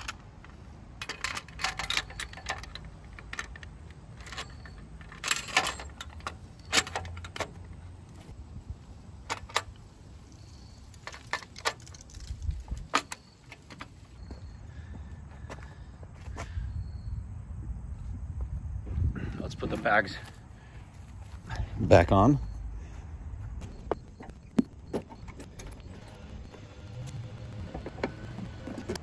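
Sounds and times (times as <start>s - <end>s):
metal bracket and screws clinking: 0.0s - 8.3s, 9.2s - 14.2s.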